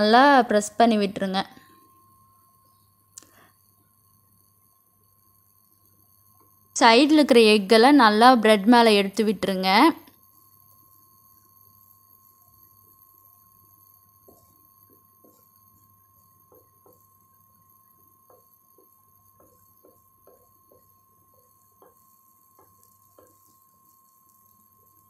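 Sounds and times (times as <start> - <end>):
low steady hum: 0.0 - 25.0
butter frying crackling pops: 12.6 - 25.0.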